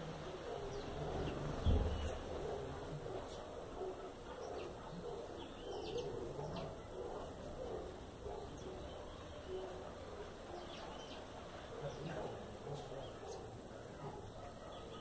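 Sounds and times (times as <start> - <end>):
low bird calls: 0.4 - 15.0.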